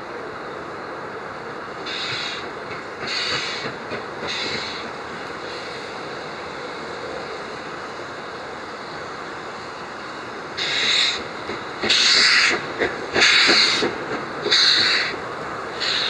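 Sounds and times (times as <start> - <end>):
steam locomotive chuffs: 1.7 - 16.0
steam blowing from drain cocks: 1.8 - 6.6, 10.6 - 16.0.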